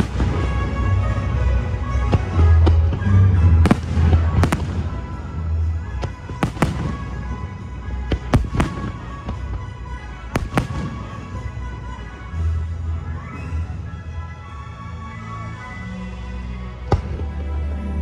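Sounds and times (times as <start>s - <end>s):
fireworks bursting: 0.0s - 12.6s
deep rumble from fireworks: 0.0s - 15.4s, 16.6s - 18.0s
show music: 0.0s - 18.0s.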